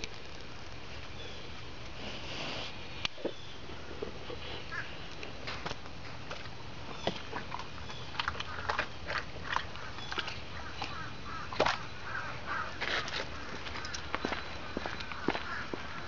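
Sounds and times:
dog chewing wet fruit: 5.5 - 12.0.

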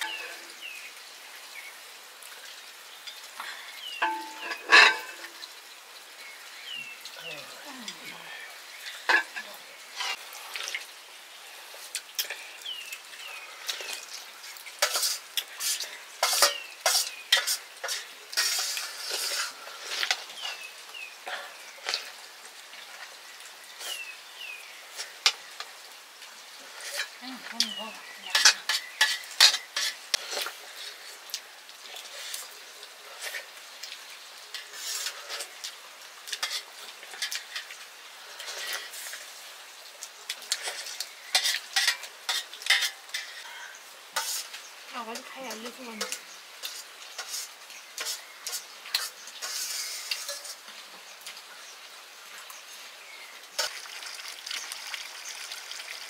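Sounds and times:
faint frying hiss: 0.0 - 56.0
metal utensil scraping cookware: 4.0 - 5.3, 14.8 - 20.2, 28.3 - 30.5, 40.5 - 43.5, 44.2 - 44.6, 46.0 - 50.6
bird chirping: 6.2 - 9.0.

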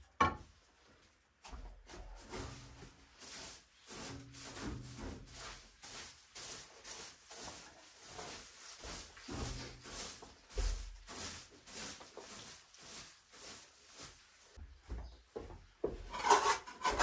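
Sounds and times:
shovel scraping straw on earth: 2.3 - 14.3.

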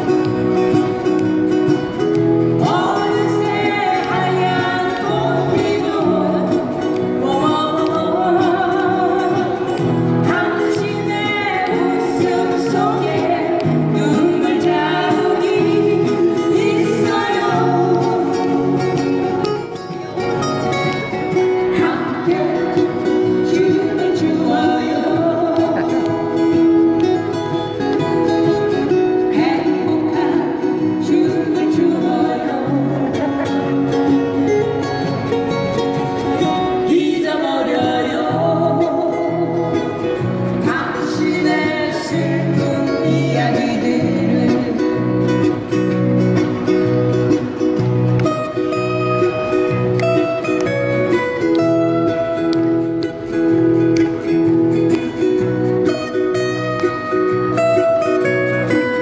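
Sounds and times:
acoustic guitars strumming: 0.0 - 59.0
people singing pop song: 2.6 - 19.0, 21.7 - 25.9, 29.2 - 33.7, 36.8 - 45.2.

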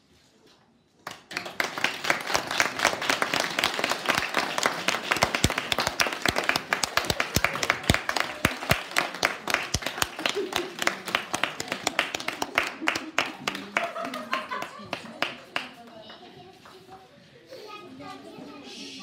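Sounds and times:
loud claps close by: 1.0 - 15.7
audience applauding: 1.0 - 16.2.

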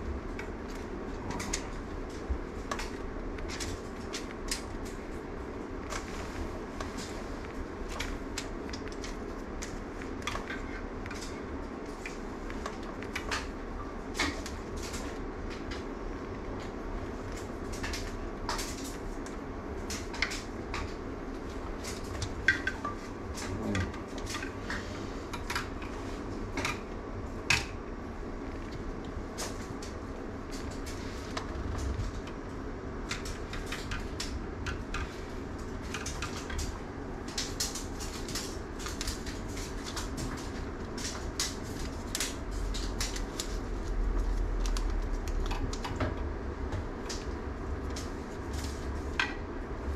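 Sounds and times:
room ventilation hum: 0.0 - 49.9.

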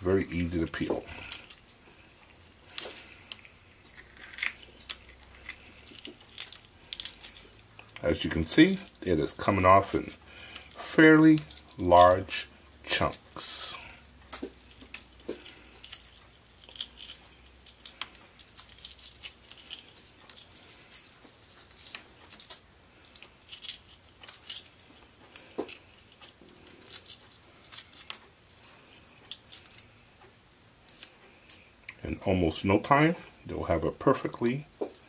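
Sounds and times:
eggshell crackling: 0.0 - 35.0.

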